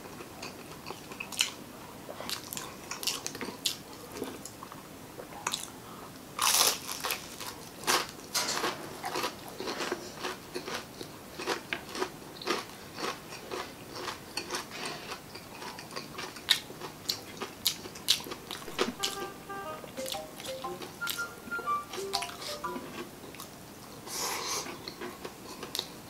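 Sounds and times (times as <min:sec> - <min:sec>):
crunching fried chicken skin: 0:06.4 - 0:18.7.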